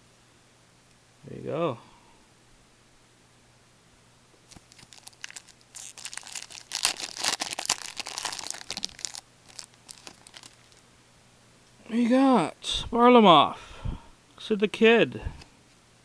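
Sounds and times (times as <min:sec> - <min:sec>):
wrapper tearing and crinkling: 0:04.5 - 0:10.8.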